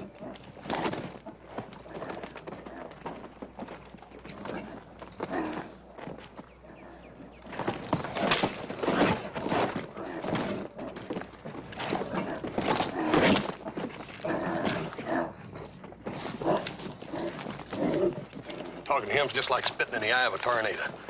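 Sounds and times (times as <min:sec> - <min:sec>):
heavy hoof thuds and stamping: 0:00.0 - 0:18.9
horse squealing and snorting: 0:04.3 - 0:05.8, 0:06.7 - 0:18.8.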